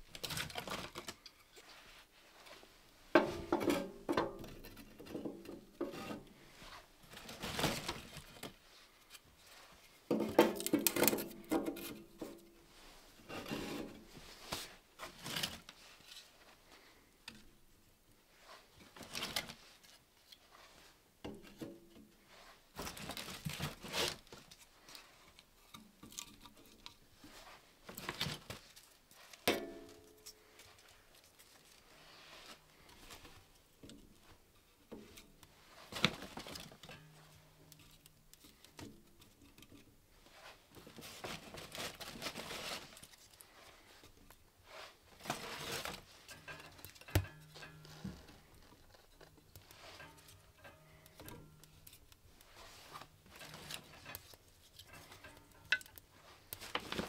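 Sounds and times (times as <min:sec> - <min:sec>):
rubbing and rustling: 0:00.0 - 0:17.1, 0:18.2 - 0:57.0
kindling sticks clattering on metal: 0:10.1 - 0:12.4, 0:29.3 - 0:30.6, 0:45.3 - 0:57.0.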